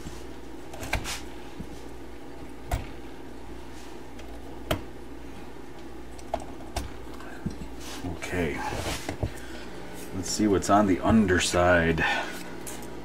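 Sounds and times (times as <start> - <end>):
vacuum tubes clicking and knocking: 5.7 - 7.8.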